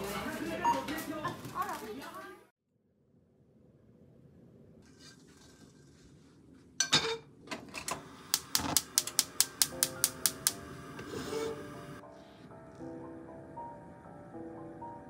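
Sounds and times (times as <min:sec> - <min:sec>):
gas burner igniter clicking: 0:07.8 - 0:10.6.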